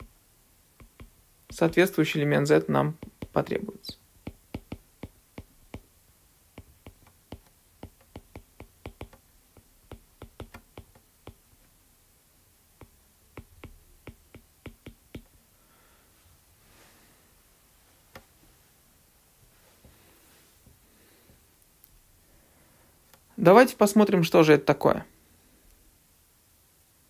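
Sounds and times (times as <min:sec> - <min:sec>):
stylus clicking on pen tablet: 0:00.8 - 0:02.0, 0:02.9 - 0:03.6, 0:04.2 - 0:05.9, 0:06.5 - 0:11.4, 0:12.8 - 0:15.3.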